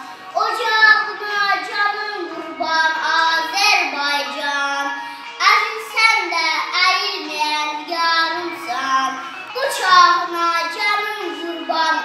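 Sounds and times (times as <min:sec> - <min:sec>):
boy reciting in sing-song voice: 0:00.0 - 0:12.0.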